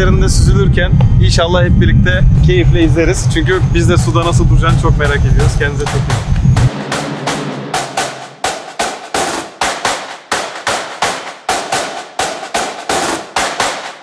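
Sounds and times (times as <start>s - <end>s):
sharp clap-like percussion hits: 5.2s - 14.0s.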